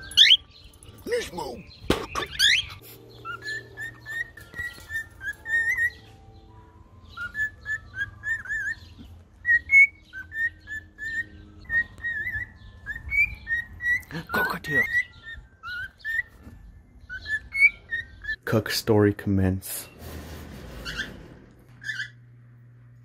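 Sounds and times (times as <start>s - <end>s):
faint high bird chirps: 0.0s - 18.5s
cockatiel whistling: 7.2s - 14.1s.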